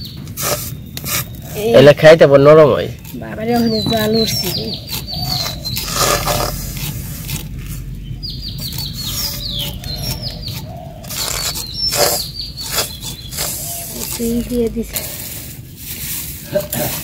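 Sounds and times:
small birds chirping: 0.0 - 15.6
spoon scraping a wok: 2.9 - 7.6.

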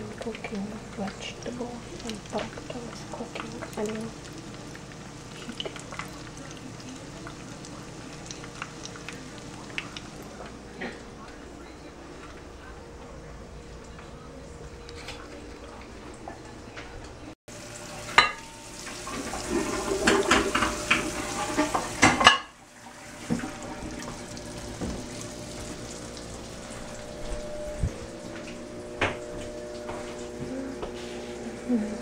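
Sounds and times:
low steady hum: 0.0 - 22.1, 22.9 - 32.0
dishes and utensils clinking: 18.0 - 22.6.

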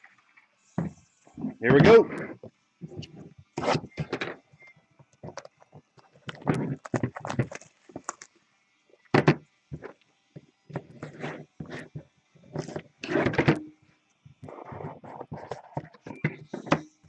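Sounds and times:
cardboard handling and scraping: 5.2 - 8.3, 10.7 - 13.6, 14.4 - 16.9
plastic wrap tearing and crinkling: 6.0 - 8.4.

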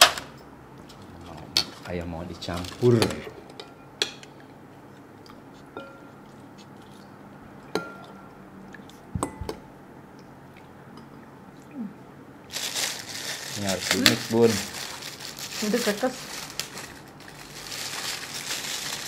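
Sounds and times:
plastic crinkling: 2.4 - 3.0, 12.5 - 19.0.

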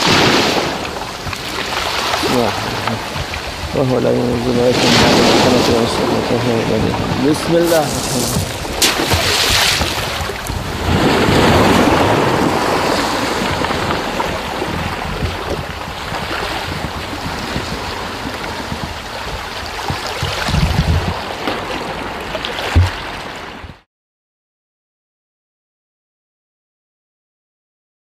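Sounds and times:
sea water lapping: 0.0 - 23.8
wind buffeting microphone: 0.0 - 23.8
stone splashing into water: 7.6 - 10.4.

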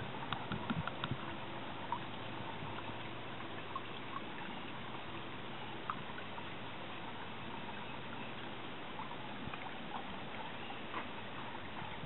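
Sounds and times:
outdoor background hiss: 0.0 - 12.0
light ticks: 0.3 - 1.2.

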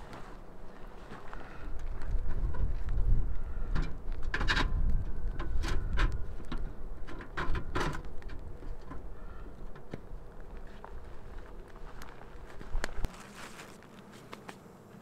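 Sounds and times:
wind gusting on microphone: 1.5 - 13.1
gloved hands rustling and clicking: 9.9 - 14.7.

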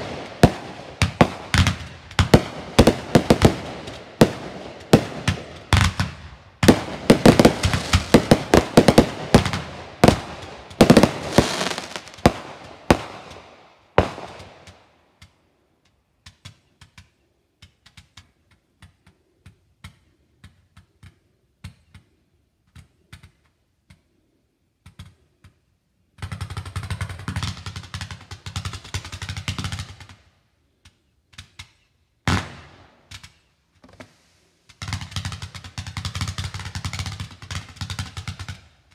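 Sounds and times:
fireworks bangs and crackling: 0.0 - 15.0, 26.2 - 30.2, 32.3 - 33.2, 34.7 - 38.9.

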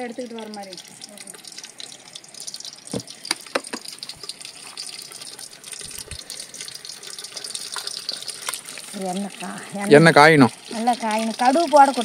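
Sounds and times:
fire crackles: 0.0 - 12.0
fire hissing: 0.0 - 12.0.

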